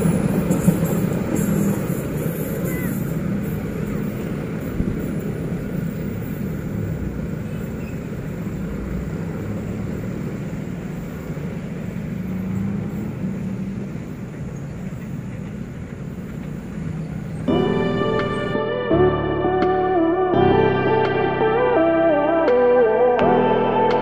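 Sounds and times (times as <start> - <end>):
train wagons rumbling: 0.0 - 18.6
locomotive diesel engine: 0.0 - 19.0.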